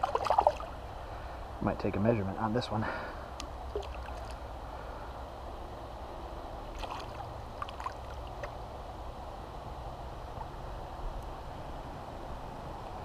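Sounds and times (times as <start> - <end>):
small splashes: 0.0 - 0.8, 3.7 - 4.4, 6.7 - 8.6
river water rushing: 3.6 - 4.8, 6.7 - 8.8.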